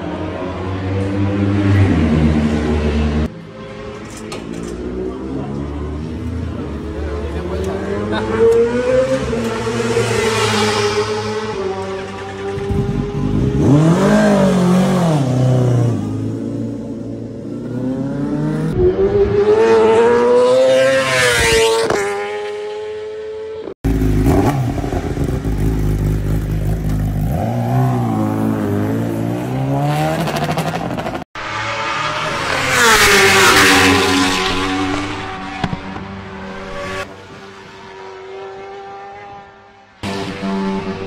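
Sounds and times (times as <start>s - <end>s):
motorbike engine revving: 7.2s - 17.1s, 17.7s - 37.1s.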